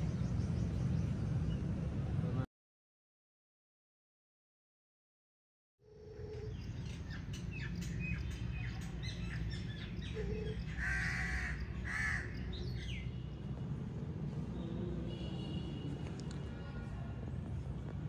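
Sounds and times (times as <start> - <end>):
birds chirping: 0.0 - 2.0, 5.9 - 15.8
harsh bird calls: 6.0 - 13.4.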